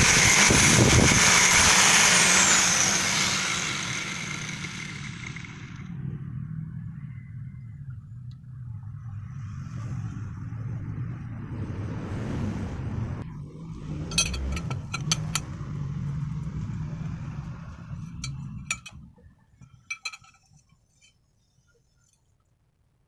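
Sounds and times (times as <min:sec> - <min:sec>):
low engine rumble: 0:00.0 - 0:21.2
metal pipes clinking: 0:14.1 - 0:15.5, 0:18.0 - 0:21.2.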